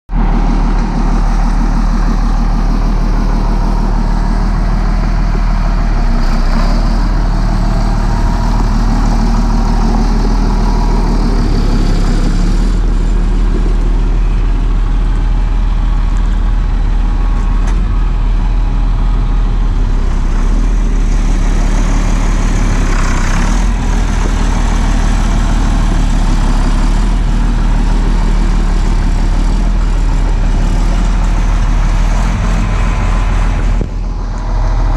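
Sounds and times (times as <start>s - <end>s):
diesel tractor engine idling: 0.1s - 34.9s.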